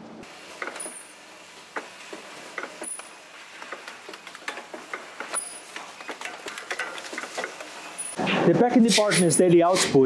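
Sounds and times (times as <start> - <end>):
machine background hum: 0.0 - 10.0
machine parts clicking and clacking: 1.8 - 8.2.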